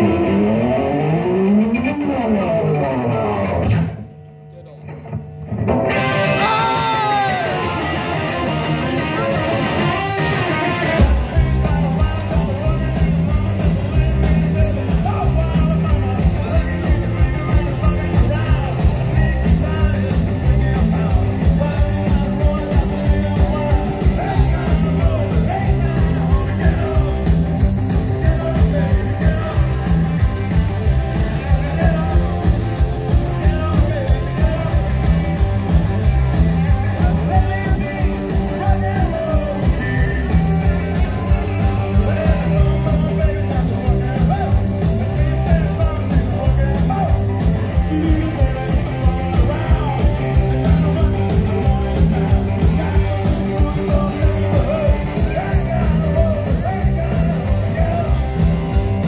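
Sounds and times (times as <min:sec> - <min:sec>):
rock band playing live: 0:00.0 - 0:59.0.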